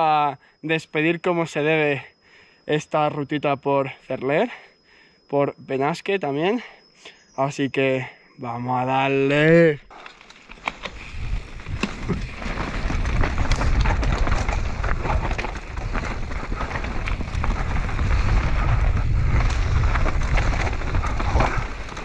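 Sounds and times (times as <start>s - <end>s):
bike rattling and clicking: 9.9s - 22.0s
tyres crunching on gravel: 10.0s - 22.0s
wind rumble on microphone: 10.8s - 22.0s.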